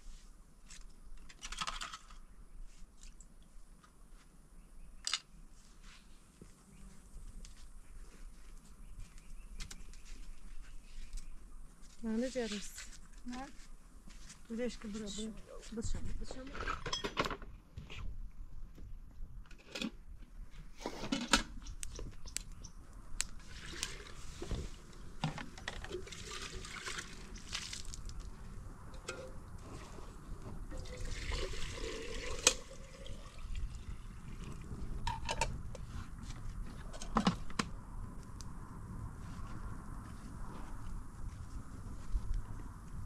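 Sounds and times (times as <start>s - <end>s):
water pouring and splashing: 23.4s - 24.8s, 25.6s - 28.3s, 30.6s - 34.7s.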